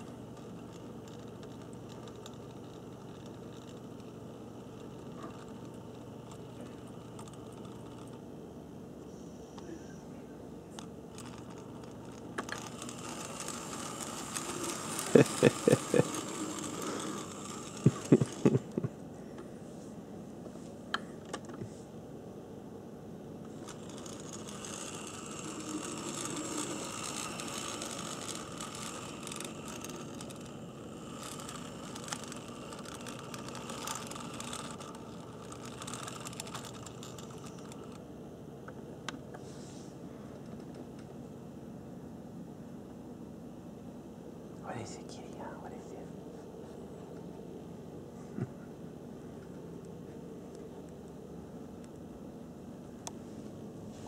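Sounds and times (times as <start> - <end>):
model locomotive motor whirring: 0.0 - 9.8, 10.7 - 19.5, 23.4 - 41.0.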